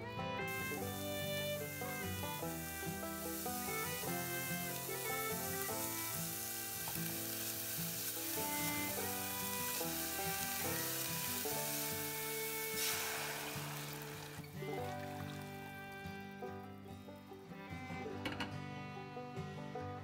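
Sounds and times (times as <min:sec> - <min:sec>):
background music with held notes: 0:00.0 - 0:20.0
meat sizzling in a pan: 0:00.5 - 0:15.7
water poured into hot pan: 0:00.5 - 0:16.2
spatula stirring in a pan: 0:01.8 - 0:14.5.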